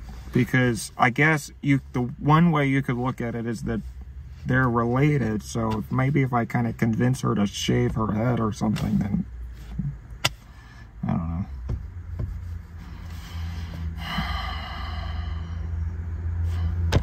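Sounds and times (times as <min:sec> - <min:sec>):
car cabin hum: 0:00.0 - 0:17.0
person sighing: 0:14.0 - 0:15.6.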